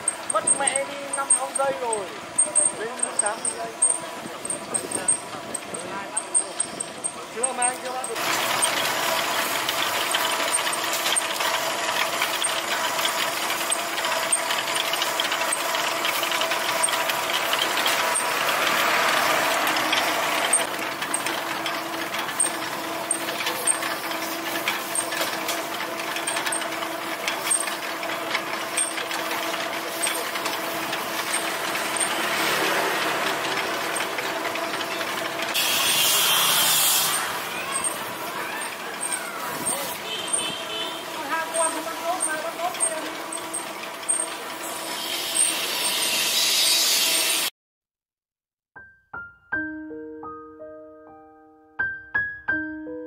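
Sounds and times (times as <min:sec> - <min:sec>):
faint regular ticking: 0:00.0 - 0:09.0
rotisserie motor hum: 0:00.0 - 0:47.5.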